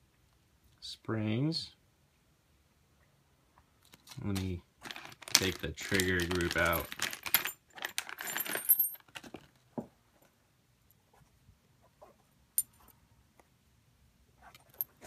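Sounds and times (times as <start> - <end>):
plastic bag rustling: 4.8 - 9.6.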